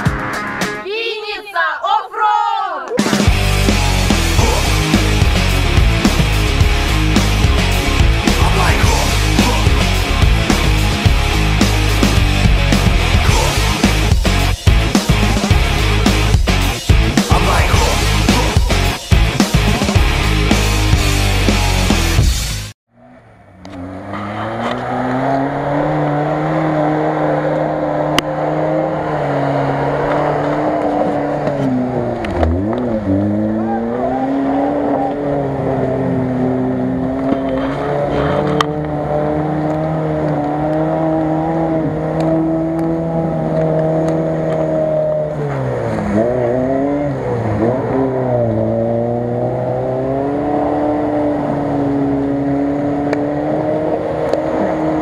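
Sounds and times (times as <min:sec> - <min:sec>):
engine revving in mud: 0:03.2 - 0:22.1, 0:22.9 - 0:55.0.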